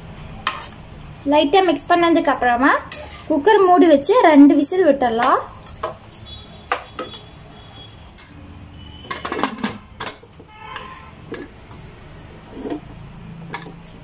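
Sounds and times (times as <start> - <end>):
metal spoon clinking on pot: 5.2 - 7.3.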